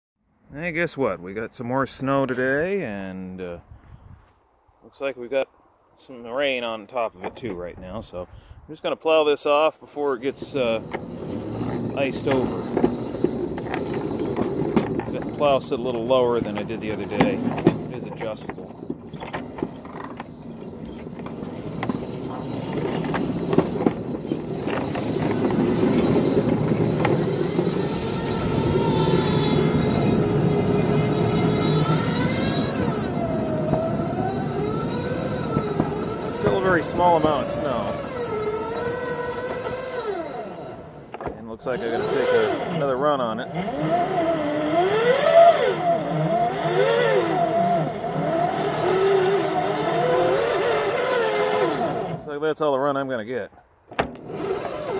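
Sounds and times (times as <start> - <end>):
miniature railway car rumbling: 10.1 - 52.3, 54.0 - 54.9
model locomotive motor running: 10.4 - 52.3, 54.1 - 54.9
sharp clicks and knocks: 16.4 - 27.9, 33.6 - 40.2.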